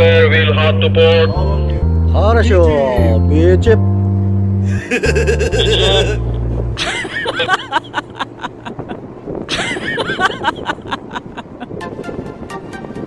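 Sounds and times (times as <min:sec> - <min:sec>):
loud low hum: 0:00.0 - 0:10.9
snickering laughter: 0:04.7 - 0:06.2, 0:06.8 - 0:11.8.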